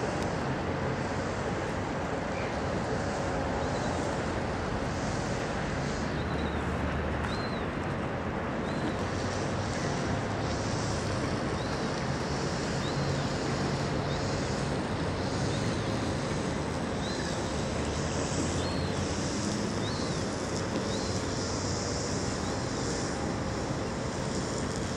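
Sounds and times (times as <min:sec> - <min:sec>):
boat motor hum: 0:00.0 - 0:24.9.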